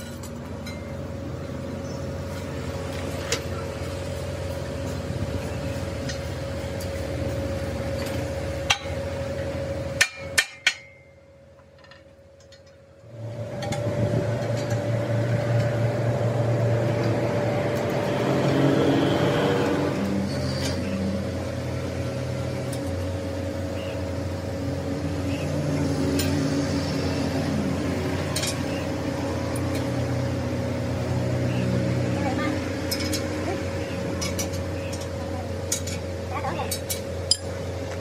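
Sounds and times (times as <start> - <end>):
machine hum with whine: 0.0 - 38.0.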